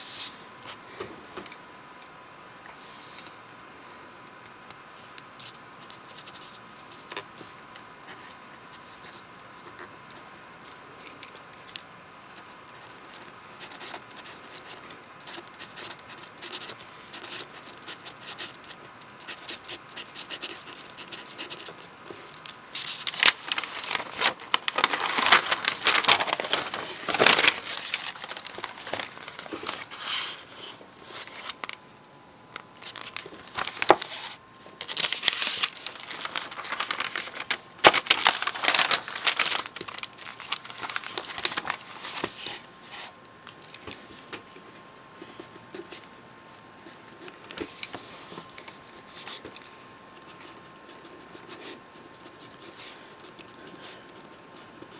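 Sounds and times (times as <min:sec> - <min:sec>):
pen scratching on paper: 0:12.4 - 0:21.8
notebook pages rustling: 0:12.4 - 0:31.8, 0:32.6 - 0:46.1, 0:46.8 - 0:54.9.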